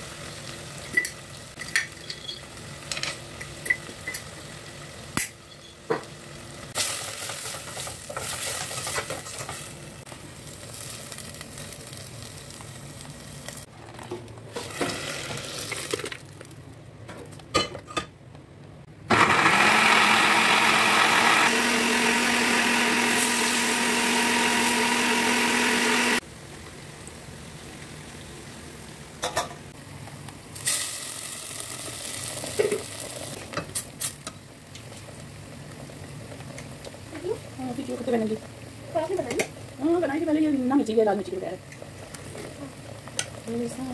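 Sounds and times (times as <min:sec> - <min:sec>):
paste sizzling in pot: 0:06.7 - 0:13.7, 0:21.4 - 0:26.2, 0:30.5 - 0:35.2
electric blender grinding: 0:19.1 - 0:26.2.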